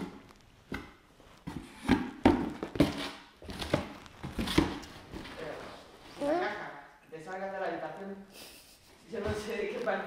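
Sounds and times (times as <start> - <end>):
cardboard boxes knocking and thudding: 1.4 - 5.4.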